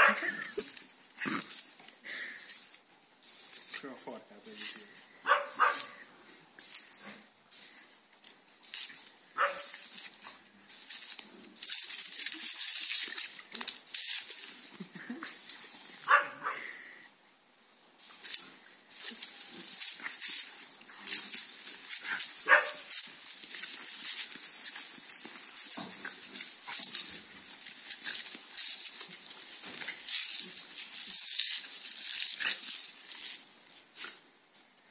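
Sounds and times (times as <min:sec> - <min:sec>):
dog barking: 0:00.0 - 0:00.2, 0:05.2 - 0:05.9, 0:09.4 - 0:09.7, 0:16.1 - 0:16.6, 0:22.5 - 0:22.9
hose spray hissing: 0:00.2 - 0:06.0, 0:06.6 - 0:08.0, 0:08.6 - 0:16.5, 0:18.0 - 0:34.2.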